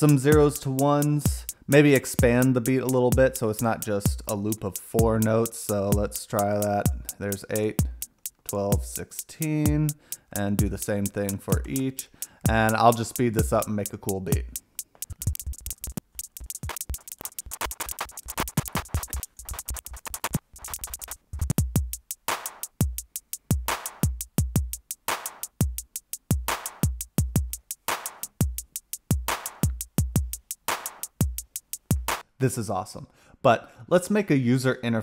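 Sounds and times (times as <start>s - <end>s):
drum machine claps: 0.0s - 32.2s
drum machine hi-hat ticks: 0.0s - 32.2s
bass drum thumps: 1.3s - 1.6s, 2.2s - 2.4s, 4.1s - 4.4s, 6.8s - 7.2s, 7.8s - 9.0s, 9.7s - 10.0s, 12.5s - 32.2s.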